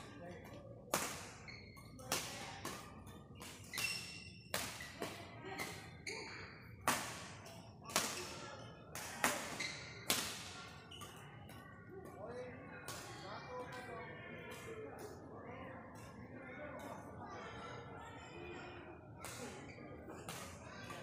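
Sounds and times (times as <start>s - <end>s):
rackets hitting shuttlecock: 0.7s - 5.8s.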